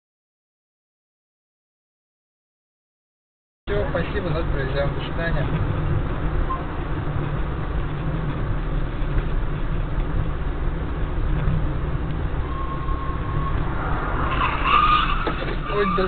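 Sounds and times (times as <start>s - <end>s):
car road and engine noise: 3.7s - 16.0s.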